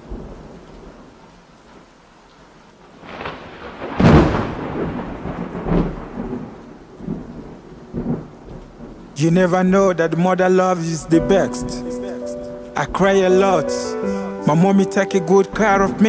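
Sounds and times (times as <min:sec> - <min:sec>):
rain hiss: 0:00.0 - 0:16.0
loud thunder clap: 0:03.0 - 0:10.0
rolling thunder: 0:03.0 - 0:10.0.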